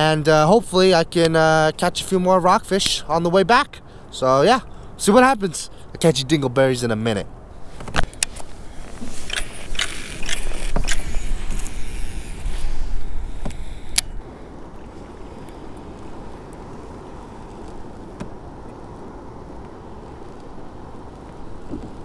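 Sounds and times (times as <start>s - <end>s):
water noise: 0.0s - 22.0s
wind noise: 7.3s - 22.0s
fishing rod handling rustle: 7.6s - 14.2s
fishing line paying out: 8.3s - 14.2s
sharp reel clicks: 9.2s - 12.7s.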